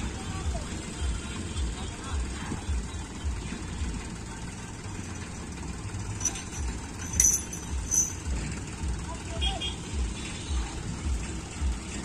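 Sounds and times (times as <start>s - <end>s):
tractor diesel engine idling: 0.0s - 12.0s
short sharp clinks: 6.1s - 8.4s.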